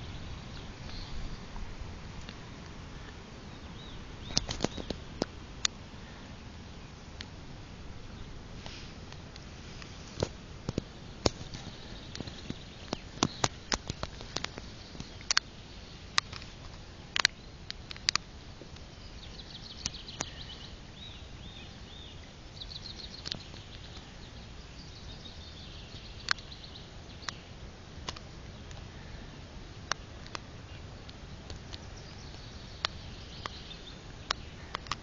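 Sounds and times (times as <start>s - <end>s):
small birds chirping: 0.0s - 7.3s, 8.0s - 35.0s
sharp clicks: 10.2s - 15.5s, 17.1s - 18.9s, 31.0s - 35.0s.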